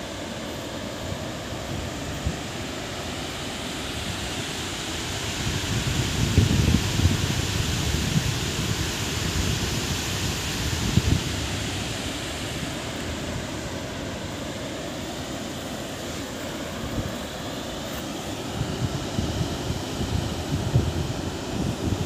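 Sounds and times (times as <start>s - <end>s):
water rushing through spillway: 0.0s - 22.0s
wind buffeting microphone: 5.4s - 13.5s, 18.4s - 22.0s.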